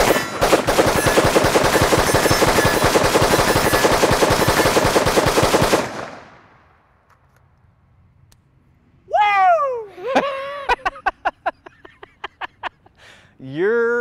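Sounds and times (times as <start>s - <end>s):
rifle rapid gunshots: 0.0s - 6.4s.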